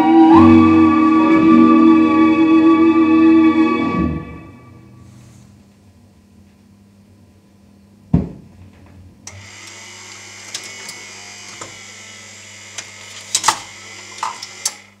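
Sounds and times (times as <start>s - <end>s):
mechanical clicks and clunks: 9.3s - 15.0s
motor whirring: 9.3s - 15.0s.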